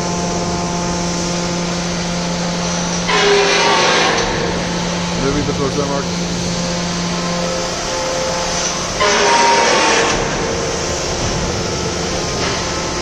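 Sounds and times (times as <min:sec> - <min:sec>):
hydraulic trailer mechanical hum: 0:00.0 - 0:13.0
hissing squealing burst: 0:02.7 - 0:05.1, 0:07.4 - 0:11.0.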